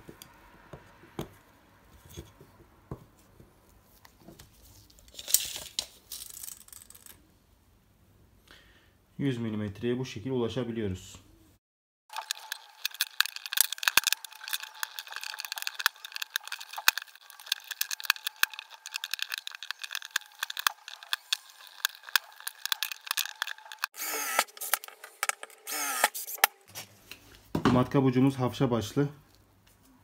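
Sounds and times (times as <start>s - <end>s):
cordless drill whirring: 23.9s - 26.6s
screwdriver scraping staples: 24.0s - 26.6s.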